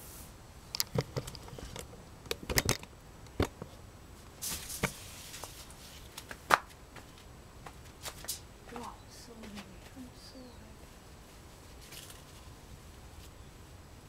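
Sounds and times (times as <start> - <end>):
leaves and canes rustling: 3.6 - 13.8.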